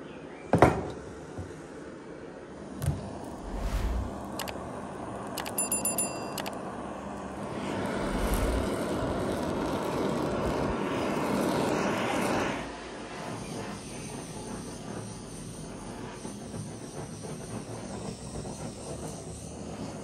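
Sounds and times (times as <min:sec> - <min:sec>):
blowtorch flame hissing: 0:02.6 - 0:05.0, 0:07.2 - 0:20.0
blowtorch ignition clicks: 0:02.9 - 0:04.6, 0:05.2 - 0:06.6.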